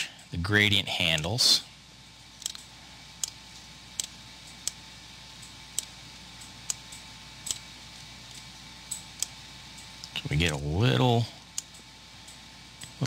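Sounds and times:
faint steady hum: 0.0s - 13.0s
computer mouse buttons clicking: 2.4s - 3.4s, 4.0s - 4.8s, 5.7s - 7.7s.

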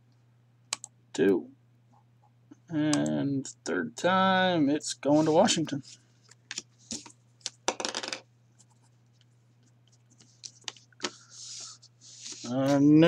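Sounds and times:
low electrical hum: 0.0s - 13.0s
sharp clicks: 0.7s - 0.9s.

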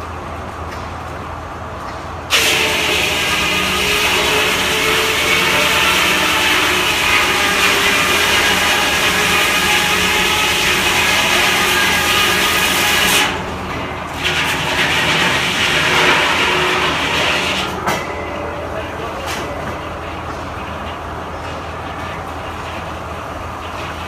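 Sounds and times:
saw cutting through log: 2.3s - 13.4s, 14.2s - 17.8s.

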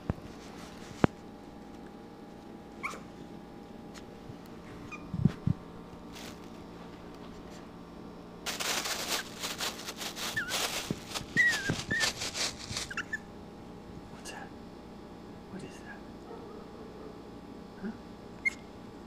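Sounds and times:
puppy squeaking: 2.8s - 3.1s, 4.8s - 5.2s, 10.3s - 10.7s, 11.3s - 12.2s, 12.8s - 13.2s, 18.4s - 18.7s
plastic bag crinkling: 6.0s - 6.6s, 8.4s - 13.2s.

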